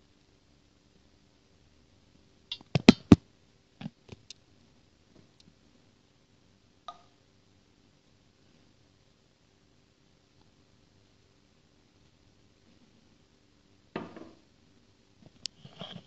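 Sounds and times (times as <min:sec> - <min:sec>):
faint steady hum: 0:00.0 - 0:16.0
sharp knocks and clicks: 0:02.5 - 0:03.2.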